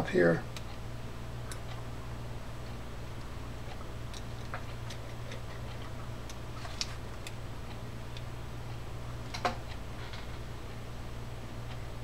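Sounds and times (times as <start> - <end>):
steady low hum: 0.0 - 12.0.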